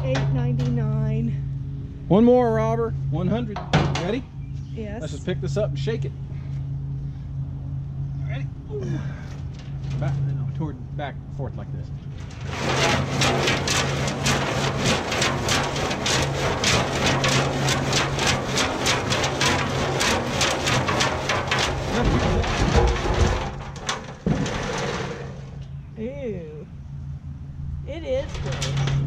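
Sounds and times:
stones rattling inside metal tank: 12.1s - 25.6s, 28.1s - 29.0s.

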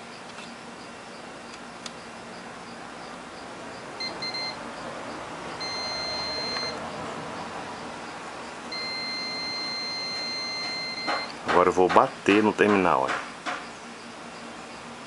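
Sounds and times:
multimeter beeps: 4.0s - 4.6s, 5.5s - 6.9s, 8.7s - 11.4s.

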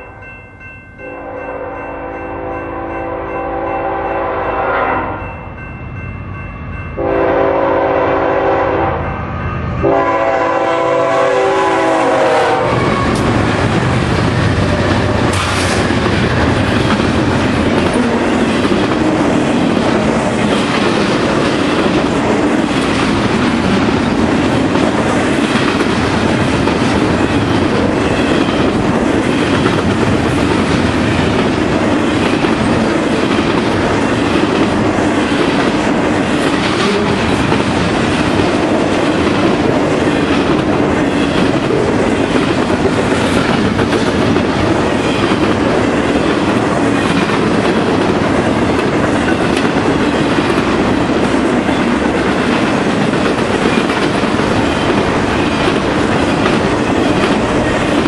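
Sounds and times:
locomotive horn blasts: 1.0s - 5.3s, 7.0s - 9.2s, 9.8s - 13.3s
train rumble: 5.1s - 58.0s
train wheels clacking on rail joints: 12.1s - 58.0s.

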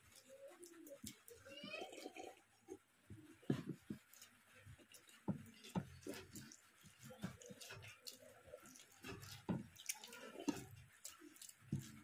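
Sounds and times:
wet chewing and lip smacking: 3.7s - 12.0s.

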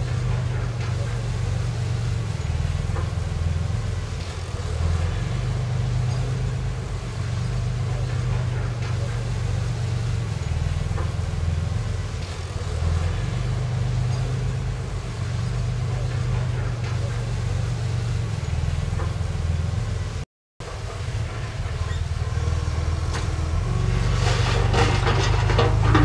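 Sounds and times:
heavy diesel engine working: 0.0s - 26.0s
faint clanks: 24.0s - 26.0s.

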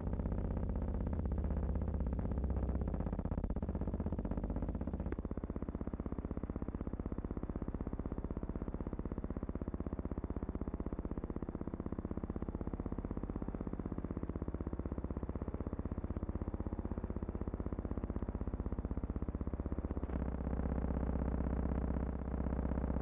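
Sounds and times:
low pulsing hum: 0.0s - 23.0s.

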